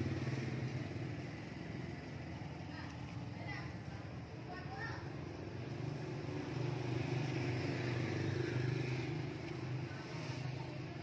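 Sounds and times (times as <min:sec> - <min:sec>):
vehicle engine passing by: 0:00.0 - 0:02.6, 0:05.6 - 0:11.0.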